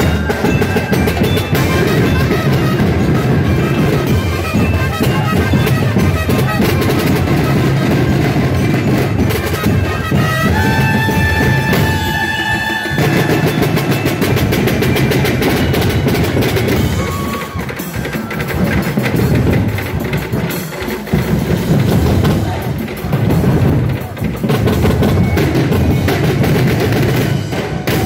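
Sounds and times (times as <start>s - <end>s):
drum-heavy percussion music: 0.0s - 28.0s
held note: 9.4s - 16.2s.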